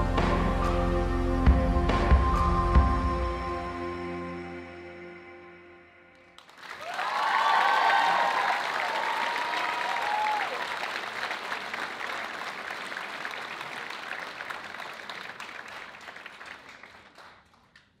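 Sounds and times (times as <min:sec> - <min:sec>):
audience applauding: 0:06.4 - 0:18.0.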